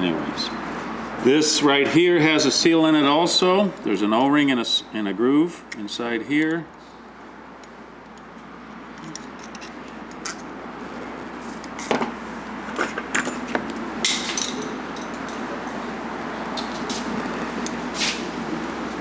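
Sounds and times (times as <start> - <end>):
workshop background hiss: 0.0 - 19.0
metal tools clinking on workbench: 14.1 - 15.4.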